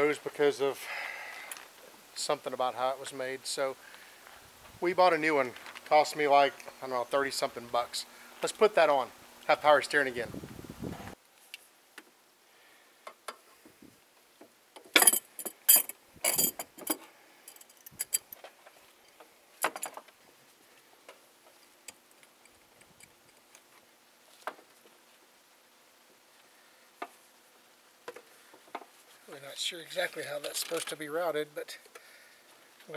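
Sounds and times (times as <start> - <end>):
hose and metal fittings rattling: 14.9 - 18.7, 30.1 - 31.1.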